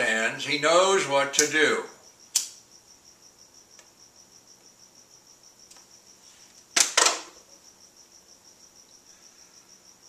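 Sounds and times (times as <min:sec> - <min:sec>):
faint high-pitched pulsing chirping: 0:07.4 - 0:10.0.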